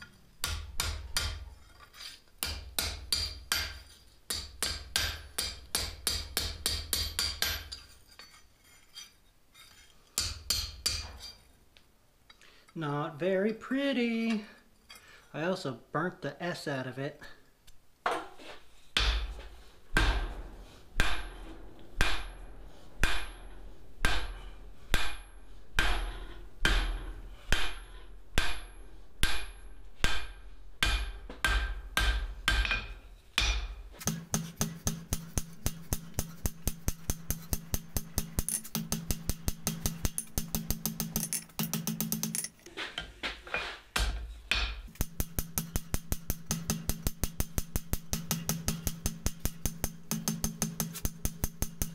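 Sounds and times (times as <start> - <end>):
hammer striking steel on anvil: 0.0 - 1.6, 2.4 - 8.4, 10.2 - 11.4, 19.0 - 42.6, 44.0 - 51.9.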